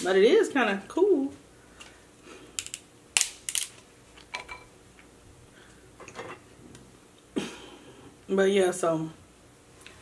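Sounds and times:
crab shell cracking: 0:02.6 - 0:03.8.

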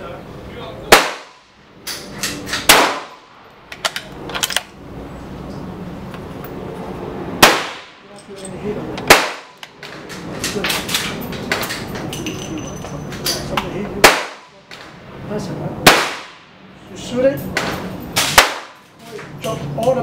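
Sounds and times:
sharp rifle shots: 0:00.9 - 0:01.5, 0:02.6 - 0:03.3, 0:07.4 - 0:08.0, 0:09.1 - 0:09.6, 0:14.0 - 0:14.5, 0:15.8 - 0:16.5, 0:18.2 - 0:18.8.

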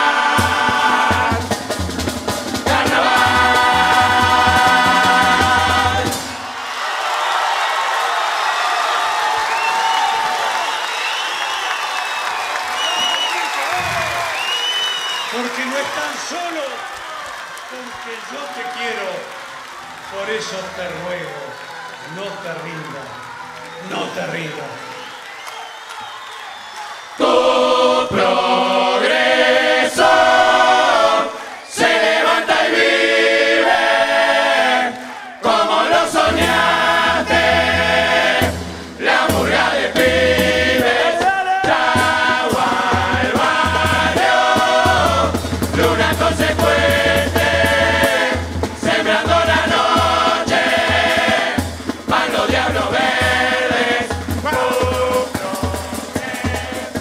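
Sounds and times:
drums and cymbals: 0:00.0 - 0:06.7, 0:35.8 - 0:57.0
chorus singing in harmony: 0:00.0 - 0:07.4, 0:27.1 - 0:57.0.

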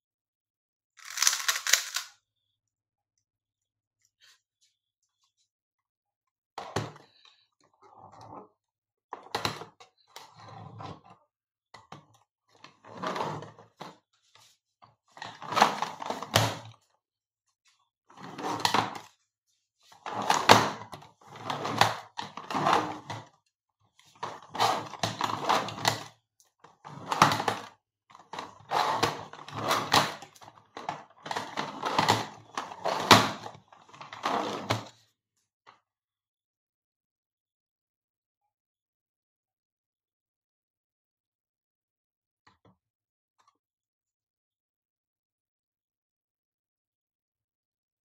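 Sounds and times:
plastic cube clacking and rattling: 0:01.0 - 0:02.1.

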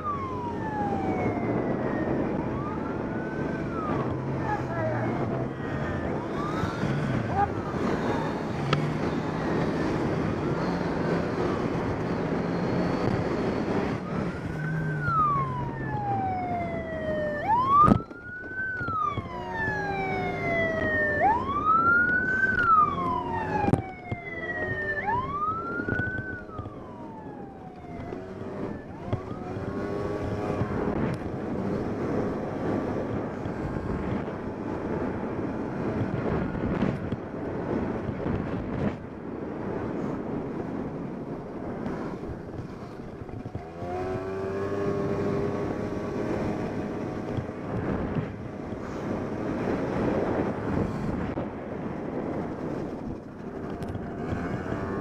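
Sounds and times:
police siren wailing: 0:00.0 - 0:37.0
wind on microphone: 0:00.0 - 0:55.0.

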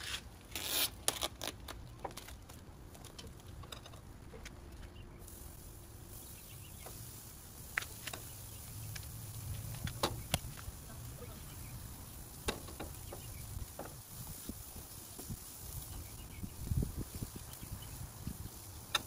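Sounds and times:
clicks and taps on grill: 0:02.0 - 0:04.9, 0:06.7 - 0:16.0, 0:17.3 - 0:19.0
low steady rumble: 0:02.6 - 0:18.9.

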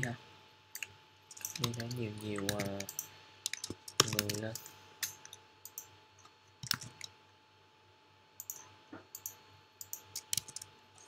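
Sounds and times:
computer keyboard key clicks: 0:00.8 - 0:04.7, 0:06.6 - 0:07.1, 0:09.2 - 0:10.7.

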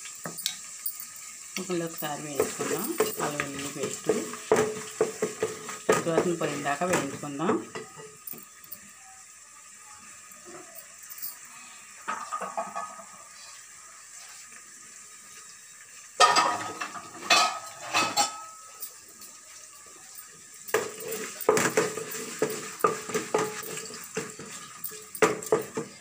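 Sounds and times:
onions frying: 0:00.0 - 0:26.0
wooden spatula scraping metal pot: 0:20.8 - 0:25.8.

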